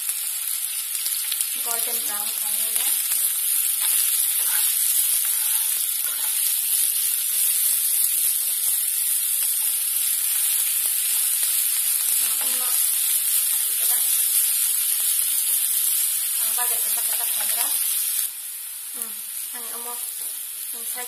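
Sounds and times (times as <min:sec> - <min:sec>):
onions sizzling in oil: 0:00.0 - 0:21.0
spatula stirring in pan: 0:03.1 - 0:11.4.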